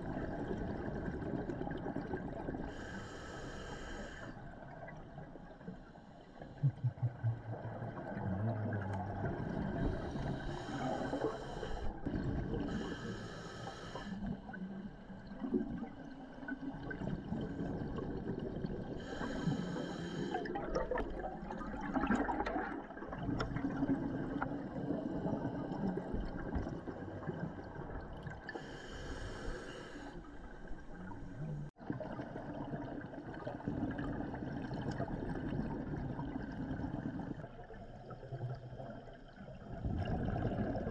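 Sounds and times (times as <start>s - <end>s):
exhaled bubbles rumbling: 0.0s - 2.9s, 6.5s - 13.1s, 14.2s - 28.8s, 30.0s - 40.9s
regulator hissing inhalations: 2.7s - 4.4s, 10.0s - 11.9s, 12.7s - 14.2s, 19.0s - 20.5s, 28.6s - 30.3s.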